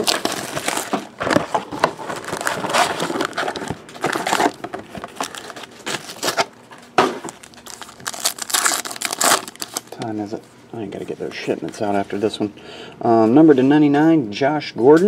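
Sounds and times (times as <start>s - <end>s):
foil crinkling: 0.0s - 6.5s, 7.2s - 10.1s.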